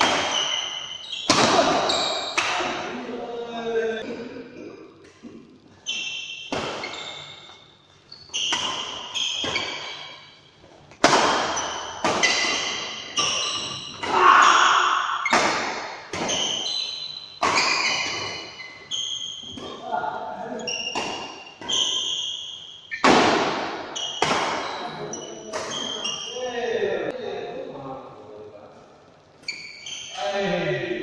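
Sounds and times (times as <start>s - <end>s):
rackets hitting shuttlecock: 0.0s - 3.0s, 5.1s - 7.6s, 8.3s - 10.3s, 10.9s - 19.8s, 20.8s - 26.1s.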